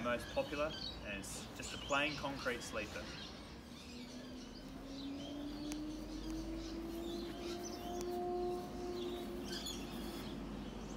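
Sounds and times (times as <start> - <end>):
small birds chirping: 0.0 - 10.9
steady hum rising in pitch: 3.4 - 10.9.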